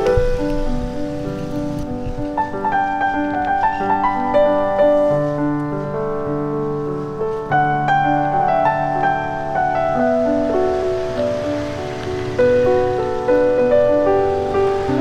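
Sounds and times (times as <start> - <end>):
gentle piano melody: 0.0 - 15.0.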